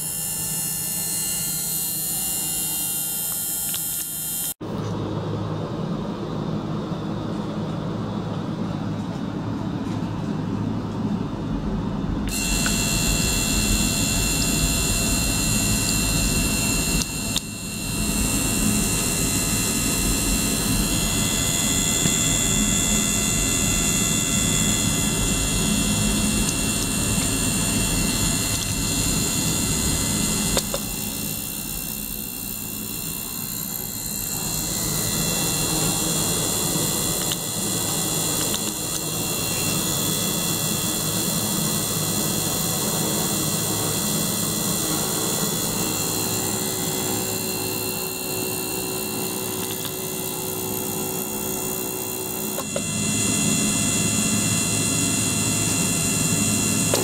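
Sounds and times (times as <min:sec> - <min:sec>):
steady high tones: 0:00.0 - 0:04.6, 0:11.3 - 0:40.8
click: 0:03.3 - 0:04.2.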